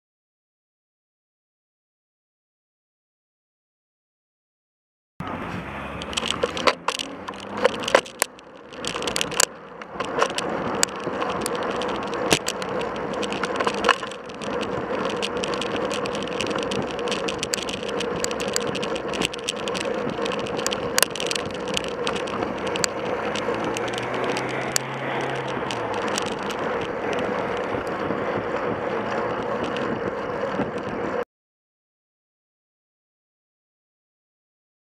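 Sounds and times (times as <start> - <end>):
wind and road noise: 5.2 - 31.2
bicycle clicks and rattles: 5.8 - 31.2.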